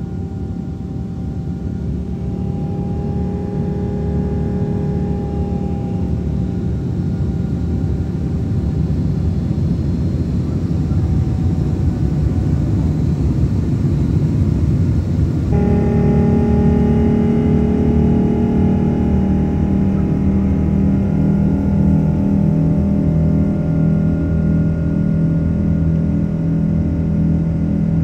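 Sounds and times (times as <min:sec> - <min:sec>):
steady tones: 0:00.0 - 0:07.3, 0:15.5 - 0:25.3
jet engines rumbling in cabin: 0:00.0 - 0:28.0.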